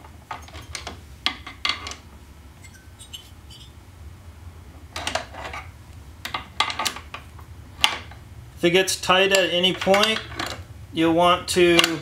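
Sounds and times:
low steady hum: 0.0s - 9.0s.

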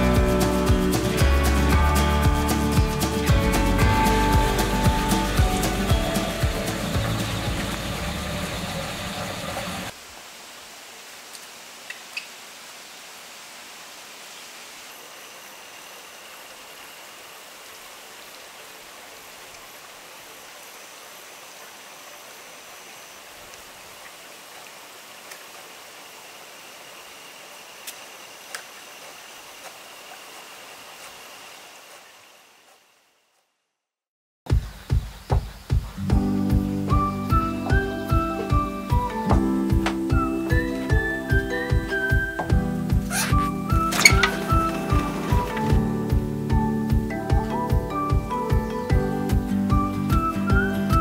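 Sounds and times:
background music: 0.0s - 8.6s, 36.0s - 51.0s
outdoor ambience hiss: 0.0s - 33.9s, 34.5s - 51.0s.

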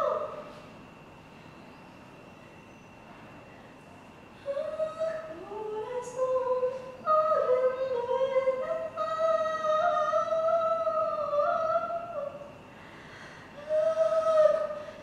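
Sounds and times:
high wordless singing: 0.0s - 0.5s, 4.4s - 12.6s, 13.6s - 15.0s.

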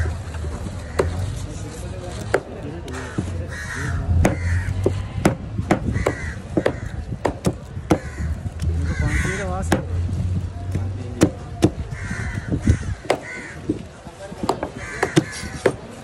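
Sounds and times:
crows cawing: 2.9s - 9.9s, 11.6s - 16.0s.

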